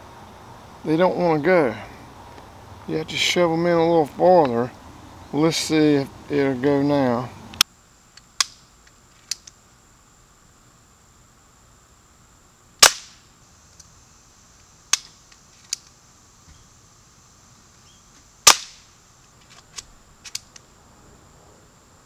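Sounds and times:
air pistol firing: 12.8 - 13.2, 18.5 - 18.9.

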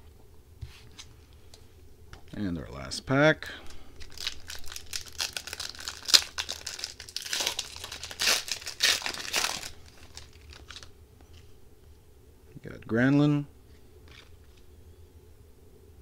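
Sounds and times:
foil wrapper crinkling and tearing: 4.0 - 10.9.

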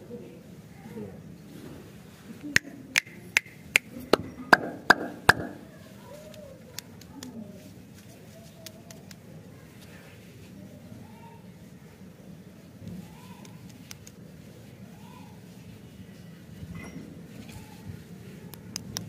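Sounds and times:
sharp clicks: 13.4 - 14.2.

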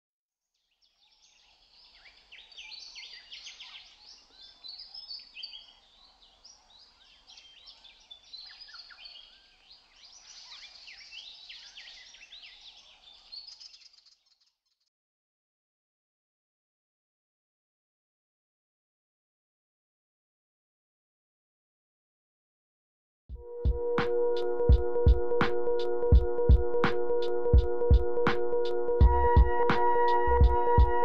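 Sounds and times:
songbirds chirping and trilling: 0.5 - 14.9.

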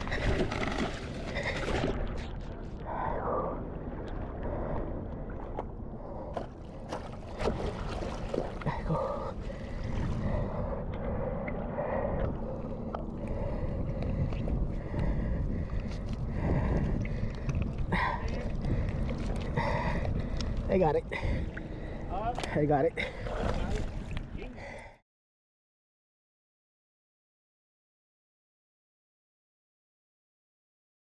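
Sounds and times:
wind buffeting microphone: 7.1 - 22.2.

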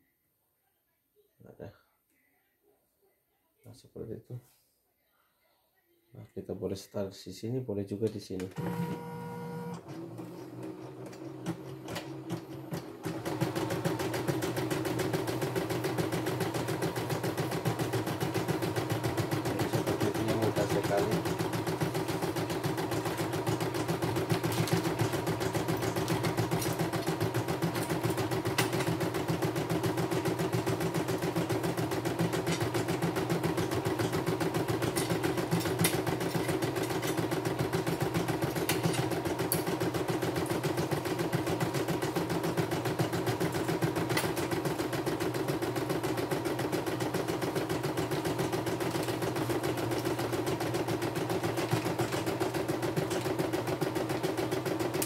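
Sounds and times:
embroidery machine needle stitching: 11.4 - 55.0.

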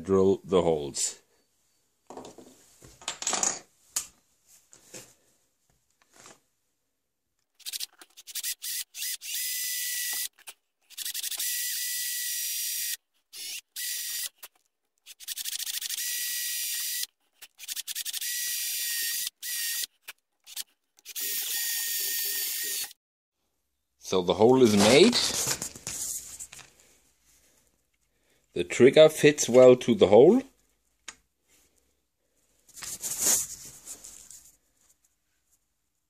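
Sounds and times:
cordless drill boring into wood: 7.6 - 23.0.

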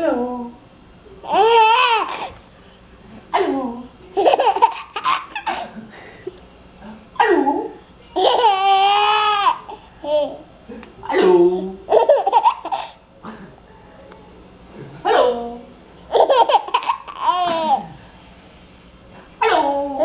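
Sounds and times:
baby laughing: 1.2 - 2.4, 4.1 - 5.7, 8.2 - 10.4, 11.9 - 13.0, 16.1 - 17.9.

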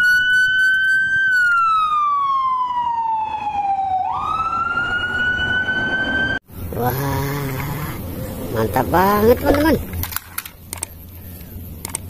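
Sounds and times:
fire engine siren wailing: 0.0 - 6.4.

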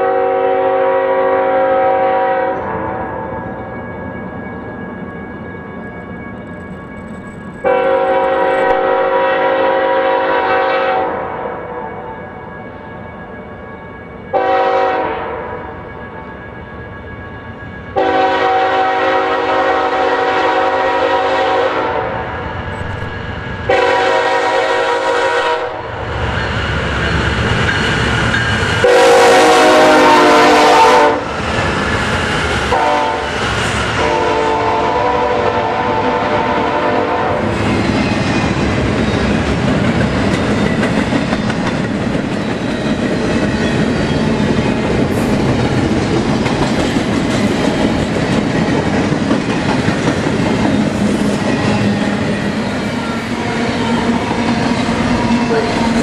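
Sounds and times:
train horn blasts: 0.0 - 3.3, 7.6 - 12.2, 14.3 - 15.8, 18.0 - 22.6, 23.7 - 26.0, 28.8 - 31.3, 32.7 - 33.4, 34.0 - 37.5
train rumbling past: 0.0 - 56.0
wheels clacking on rails: 25.8 - 30.2, 35.6 - 56.0.

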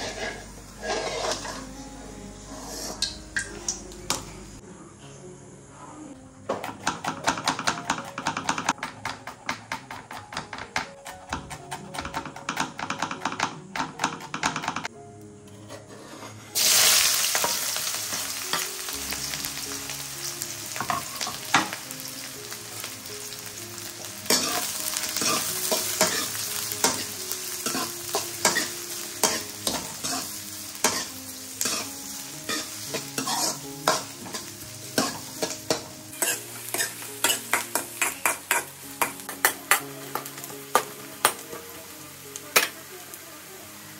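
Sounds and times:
onions sizzling in hot oil: 0.0 - 1.6, 15.9 - 43.9
metal ladle scraping pan: 0.0 - 1.8, 2.4 - 3.8, 15.5 - 16.8, 24.3 - 38.7.

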